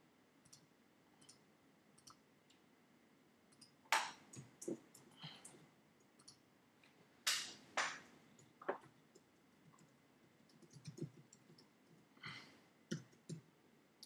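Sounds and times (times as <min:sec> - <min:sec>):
computer mouse clicks: 0:00.4 - 0:01.4, 0:02.0 - 0:02.2, 0:03.5 - 0:06.4, 0:09.1 - 0:12.0.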